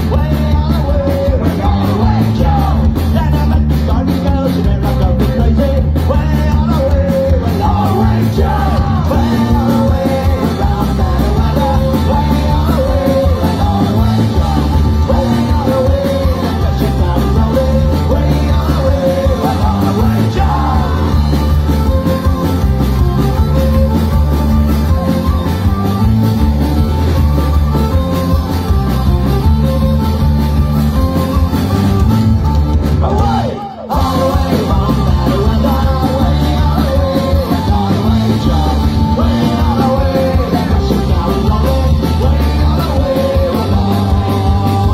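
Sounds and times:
person singing lead vocal: 0:00.0 - 0:22.2, 0:33.0 - 0:44.9
accordion: 0:00.0 - 0:44.9
bass guitar: 0:00.0 - 0:44.9
drums: 0:00.0 - 0:44.9.

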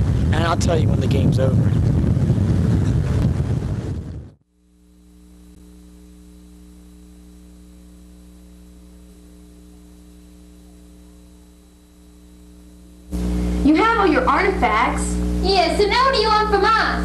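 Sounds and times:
wind buffeting microphone: 0:00.0 - 0:04.4
electrical mains hum: 0:00.0 - 0:17.0.

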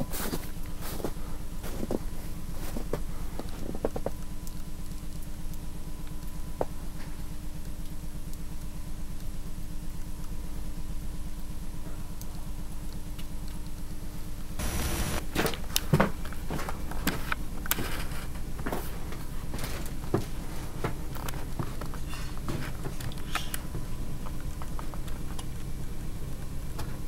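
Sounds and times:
low pulsing hum: 0:00.0 - 0:27.0
loud static hiss: 0:14.1 - 0:15.7.

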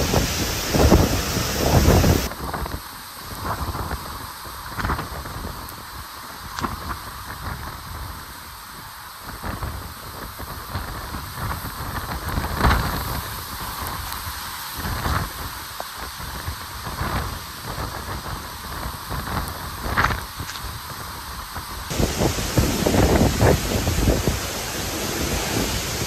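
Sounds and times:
torrential rain hissing: 0:00.0 - 0:26.0
wind gusts buffeting microphone: 0:00.0 - 0:26.0.

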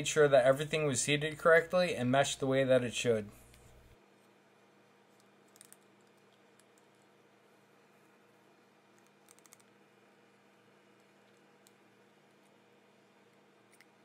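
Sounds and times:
faint metal parts clicking: 0:05.1 - 0:07.0.

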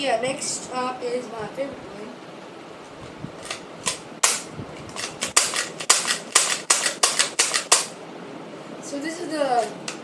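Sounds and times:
plastic toy blaster clicks: 0:03.4 - 0:07.9.

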